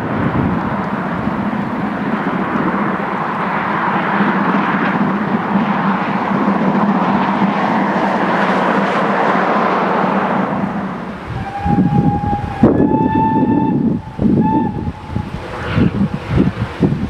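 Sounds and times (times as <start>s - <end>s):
steam locomotive passing: 0.0s - 17.0s.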